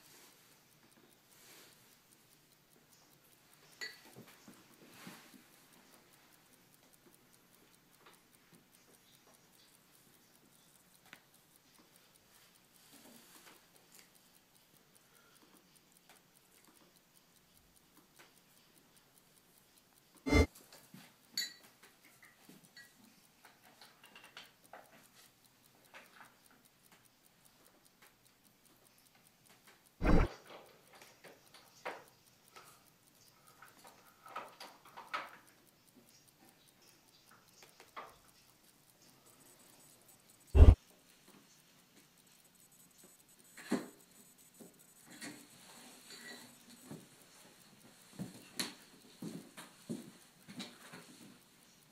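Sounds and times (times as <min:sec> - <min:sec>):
faint clicks and ticks: 0:00.0 - 0:51.9
soft electronic swishes: 0:20.3 - 0:20.5, 0:30.0 - 0:30.3, 0:40.6 - 0:40.8.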